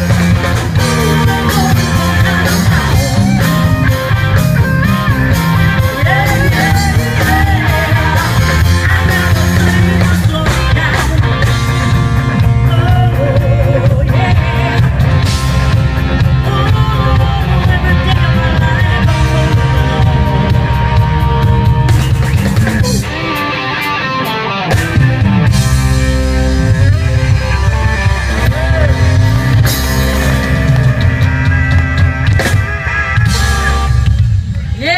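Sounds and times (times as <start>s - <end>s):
person singing: 0.0s - 4.1s, 5.7s - 15.5s, 16.2s - 21.8s
bass guitar: 0.0s - 34.9s
drum kit: 0.0s - 34.9s
electric guitars: 0.0s - 34.9s.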